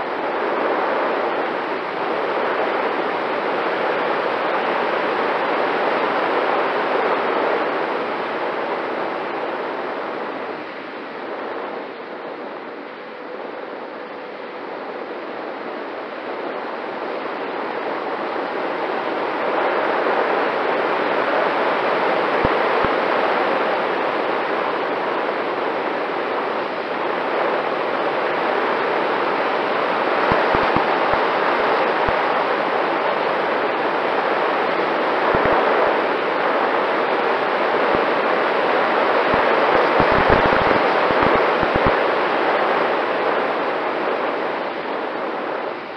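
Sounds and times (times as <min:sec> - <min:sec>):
ducted fan jet airflow: 0:00.0 - 0:45.9
wind buffeting microphone: 0:29.9 - 0:32.4, 0:37.6 - 0:42.3.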